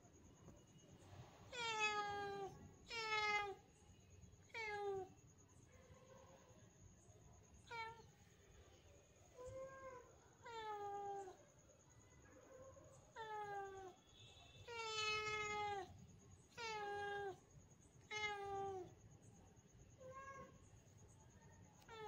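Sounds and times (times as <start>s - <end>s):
cat meowing: 1.5s - 3.6s, 4.5s - 5.1s, 7.7s - 8.1s, 9.4s - 11.4s, 13.1s - 14.0s, 14.6s - 15.9s, 16.5s - 17.4s, 18.0s - 18.9s, 21.8s - 22.0s.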